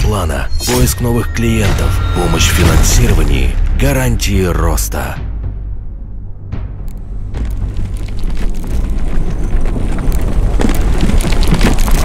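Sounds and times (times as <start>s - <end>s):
deep rumble: 0.0s - 12.0s
stone cracking and debris falling: 7.4s - 12.0s.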